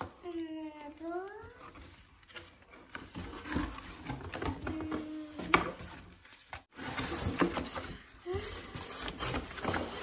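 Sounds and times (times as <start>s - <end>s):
cardboard scraping and rustling: 0.8s - 10.0s.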